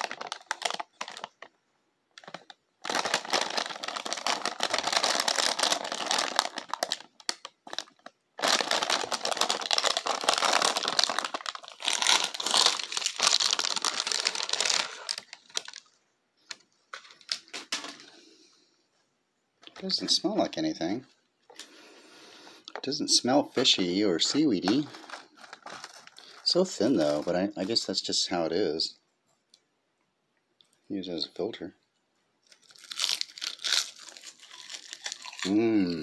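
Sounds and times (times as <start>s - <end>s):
plastic wrapper crinkling: 0.0s - 18.1s, 22.7s - 28.0s, 32.4s - 35.6s.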